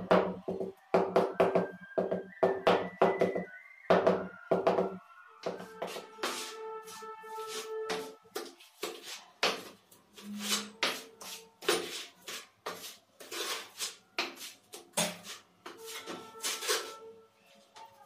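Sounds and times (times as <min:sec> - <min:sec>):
trowel scraping mortar onto tile: 0:07.4 - 0:17.1.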